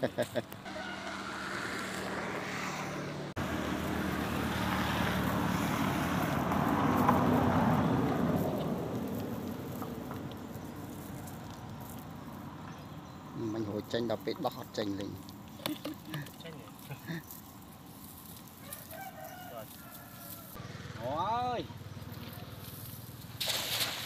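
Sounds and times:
road vehicle passing by: 0.6s - 15.5s, 16.5s - 23.5s.

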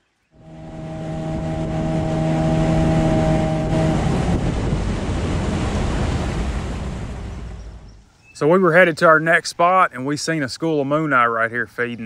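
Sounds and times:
wind rushing over microphone: 0.4s - 8.0s
outboard motor hum: 0.4s - 8.1s.

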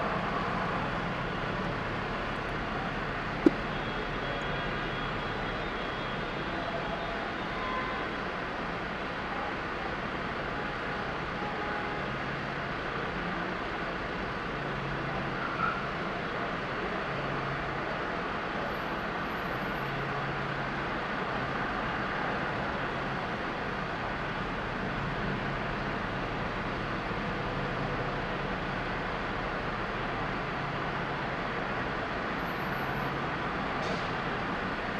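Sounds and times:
idling traffic noise: 0.0s - 34.9s.

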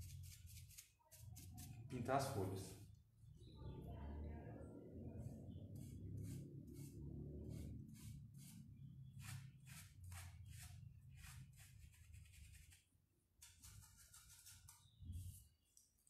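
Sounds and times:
paintbrush scratching in pot: 0.0s - 2.0s, 5.7s - 15.6s
low hum: 1.7s - 9.4s.

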